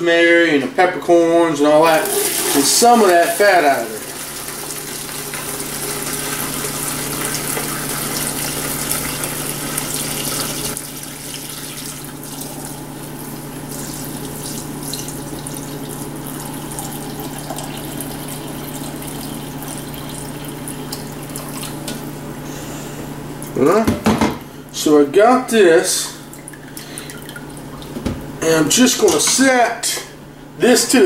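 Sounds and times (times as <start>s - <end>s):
liquid splashing into pitcher: 1.9s - 22.2s, 26.0s - 28.3s
liquid pouring through strainer: 2.0s - 12.8s, 13.6s - 21.8s.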